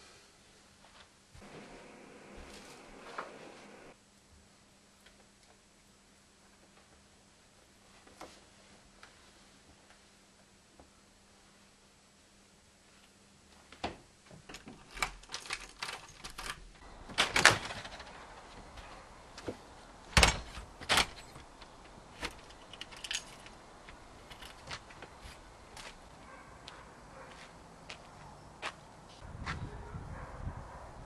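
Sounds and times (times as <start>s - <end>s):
door opening and shutting: 13.8s - 23.6s
keys jangling: 14.8s - 16.6s, 22.2s - 23.6s, 24.2s - 24.7s.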